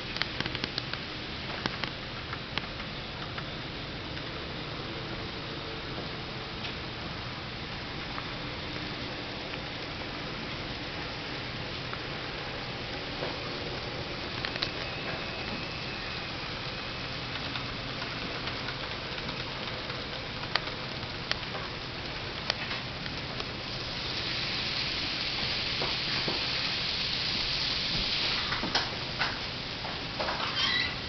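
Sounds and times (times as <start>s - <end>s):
model train rolling hiss: 0.0s - 31.0s
sharp clicks: 0.1s - 1.0s, 14.3s - 14.9s, 17.3s - 21.6s.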